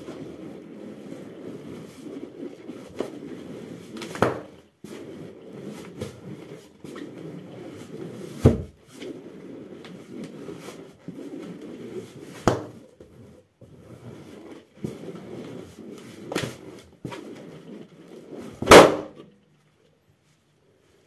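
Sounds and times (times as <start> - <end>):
balloon squashed and rubbed: 0.0 - 19.2
foot stomping on balloon: 4.0 - 4.6, 8.4 - 8.8, 12.4 - 12.8, 18.6 - 19.2
balloon bursting with loud pop: 18.6 - 19.2.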